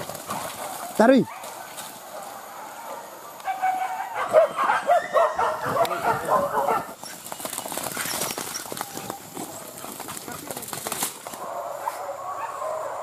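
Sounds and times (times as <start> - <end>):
rustling crackling noise: 0.0 - 2.5, 5.7 - 12.1
dogs barking and yelping: 0.0 - 10.3, 11.2 - 13.0.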